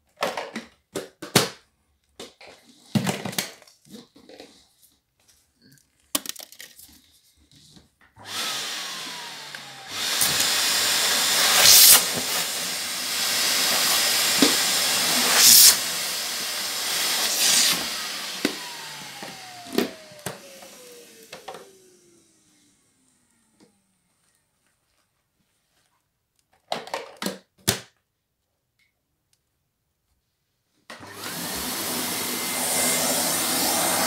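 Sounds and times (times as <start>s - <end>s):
vacuum cleaner running: 8.2s - 24.4s, 30.9s - 34.0s.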